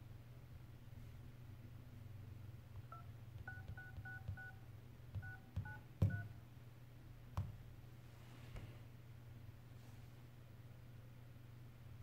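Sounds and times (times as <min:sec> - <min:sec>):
two-tone keypad beeps: 0:02.9 - 0:04.6, 0:05.2 - 0:06.3.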